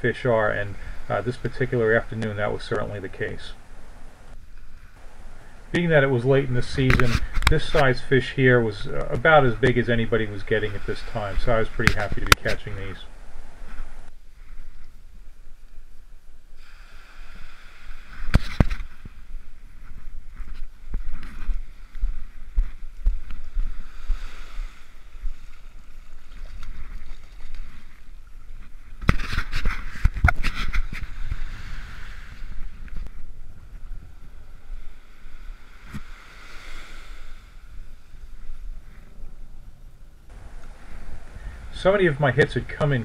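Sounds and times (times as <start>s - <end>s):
small waves washing on beach: 0.0s - 19.8s, 21.0s - 39.0s, 40.3s - 43.0s
wind buffeting microphone: 28.5s - 36.1s, 38.2s - 43.0s.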